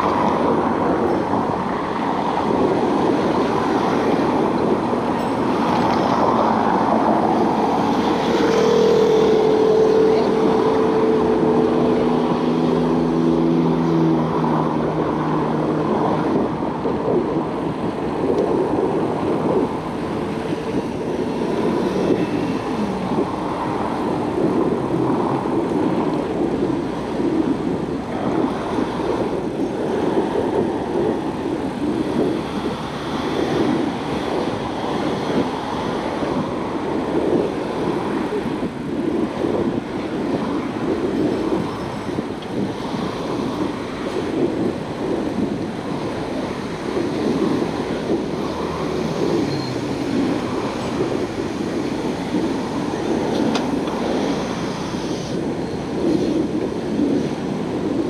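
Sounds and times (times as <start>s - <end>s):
engine hum: 0.0s - 58.0s
road traffic rushing: 0.0s - 58.0s
wind noise: 0.0s - 58.0s.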